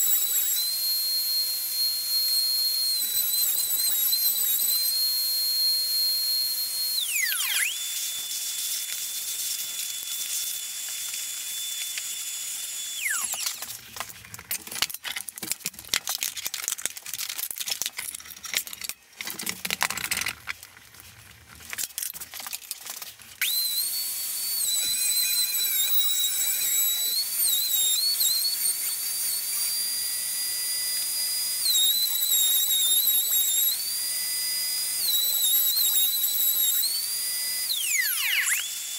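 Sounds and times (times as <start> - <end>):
wood router whining: 0.0 - 15.0, 23.4 - 38.9
router spinning down: 0.0 - 15.6, 23.4 - 38.9.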